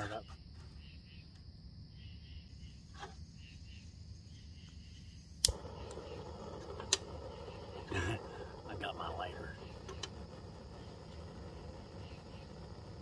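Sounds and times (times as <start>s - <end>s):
faint gas hiss: 4.2s - 13.0s
sharp click: 5.4s - 6.0s
burner igniting pop: 5.4s - 13.0s
stove burner rushing: 5.4s - 13.0s.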